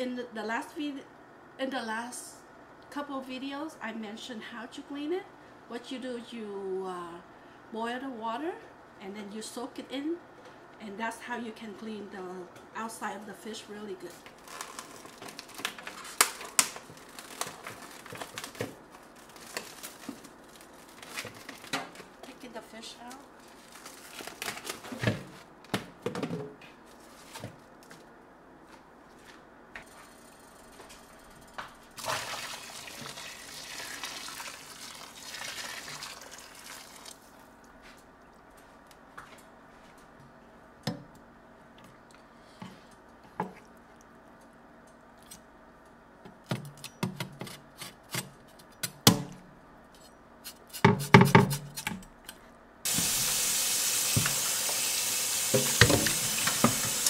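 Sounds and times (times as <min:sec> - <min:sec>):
tap water running: 0:32.0 - 0:37.2, 0:52.9 - 0:57.0
bowl and knife knocking on sink: 0:55.6 - 0:57.0.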